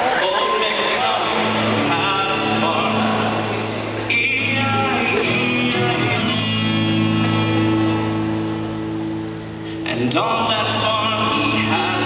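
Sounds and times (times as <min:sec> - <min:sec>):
voices: 0:00.0 - 0:06.4
acoustic guitar strumming: 0:00.0 - 0:12.0.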